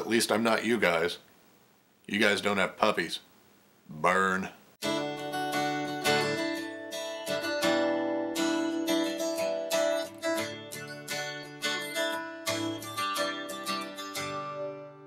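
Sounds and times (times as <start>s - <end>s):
strummed acoustic guitar chords: 4.8s - 15.0s.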